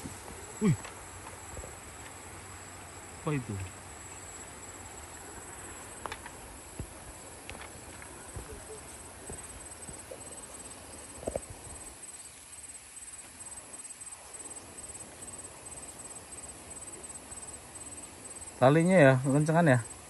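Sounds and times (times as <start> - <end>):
insects chirping: 0.0 - 20.0
faint footsteps on soil: 5.2 - 10.3.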